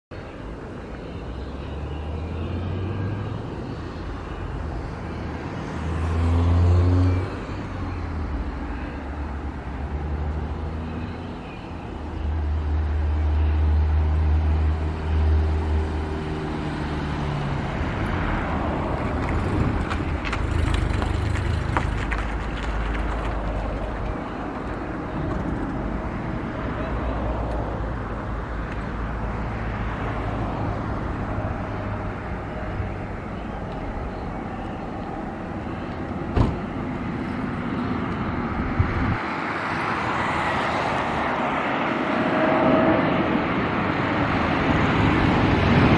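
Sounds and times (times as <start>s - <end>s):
wind rumbling on microphone: 18.0s - 24.2s, 38.3s - 39.3s
distant jet engines rushing: 37.8s - 45.9s.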